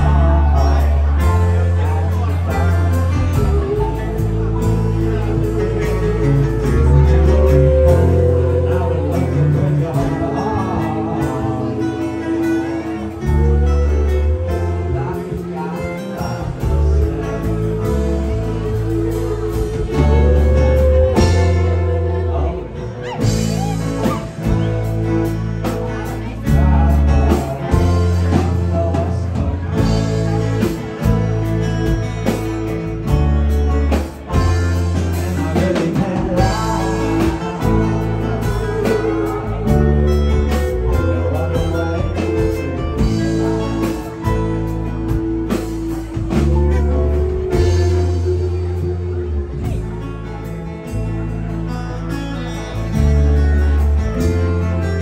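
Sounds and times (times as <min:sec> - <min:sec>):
steady drum beat: 0:00.0 - 0:22.3, 0:23.0 - 0:51.3
bass line: 0:00.0 - 0:55.0
keyboard: 0:00.0 - 0:55.0
lead voice singing: 0:00.0 - 0:55.0
strummed acoustic guitars: 0:00.0 - 0:55.0
backing harmonies singing: 0:35.2 - 0:49.8.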